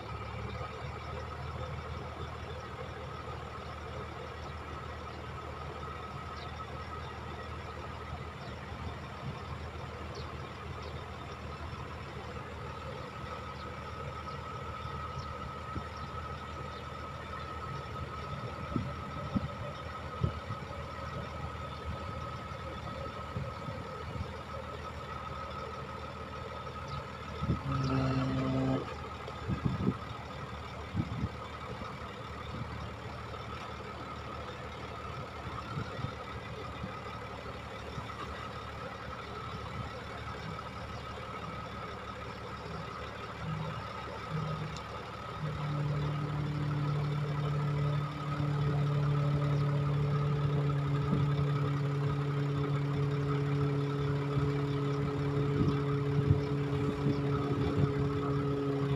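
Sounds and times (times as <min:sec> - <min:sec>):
diesel engine running: 0:00.0 - 0:58.9
low drone: 0:27.4 - 0:29.0
hydraulic hoist whine: 0:27.4 - 0:30.0, 0:42.6 - 0:58.9.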